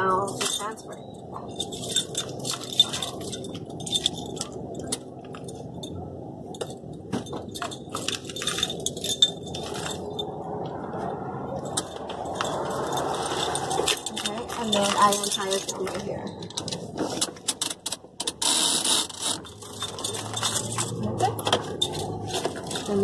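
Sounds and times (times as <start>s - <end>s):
keys jangling and clinking: 0.1s - 10.6s, 11.6s - 16.8s, 17.5s - 23.0s.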